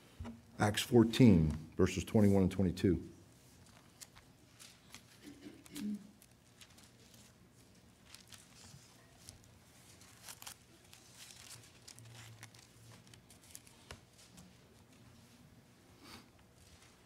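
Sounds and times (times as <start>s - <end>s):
low steady hum: 0.0s - 17.0s
thin pages rustling and turning: 3.5s - 15.4s, 16.4s - 17.0s.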